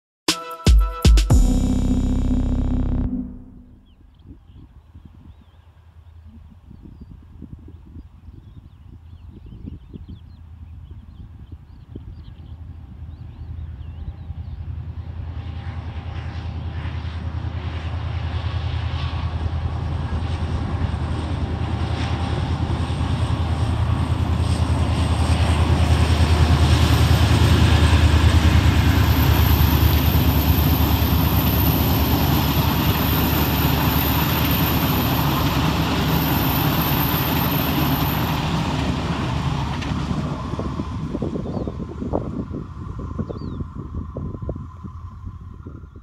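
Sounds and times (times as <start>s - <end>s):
locomotive engine drone: 1.3s - 4.0s, 19.4s - 41.8s
train coaches rolling on rails: 26.5s - 41.1s.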